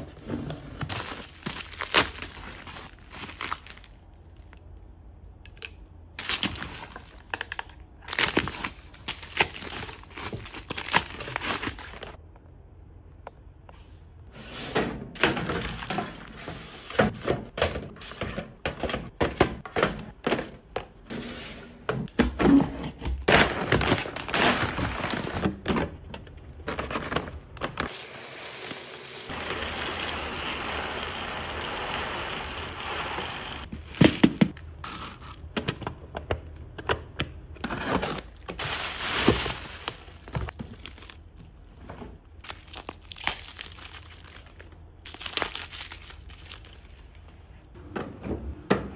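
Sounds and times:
plastic crinkling: 38.6 - 41.6.

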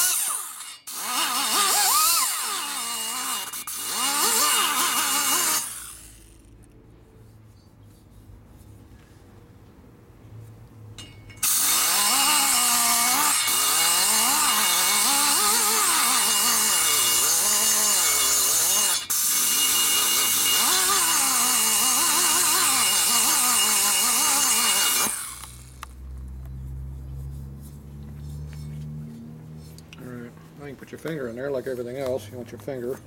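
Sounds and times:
die grinder cutting metal: 0.0 - 6.6, 11.4 - 25.9.

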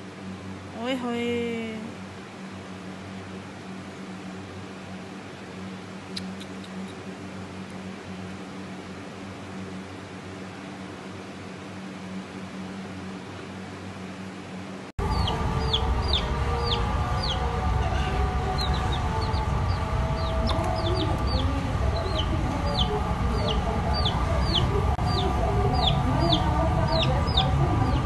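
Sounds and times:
steady low hum: 0.0 - 28.0
baby chick peeping: 15.0 - 28.0.

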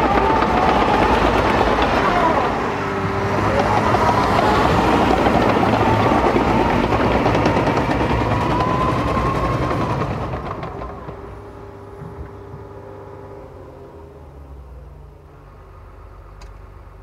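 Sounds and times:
wavering whine: 0.0 - 16.8
track loader engine running: 0.0 - 17.0.

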